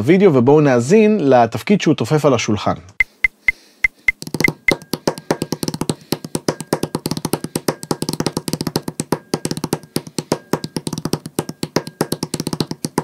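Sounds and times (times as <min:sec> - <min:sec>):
fingers drumming on tabletop: 0:03.0 - 0:13.0.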